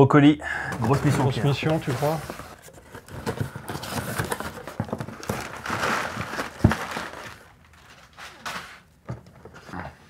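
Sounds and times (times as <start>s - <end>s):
cardboard box rustling: 0.8s - 8.6s
scraping rustle: 0.8s - 8.9s.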